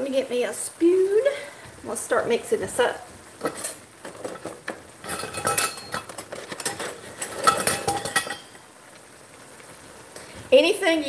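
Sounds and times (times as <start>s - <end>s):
metal utensils clinking and rattling: 3.4s - 8.6s.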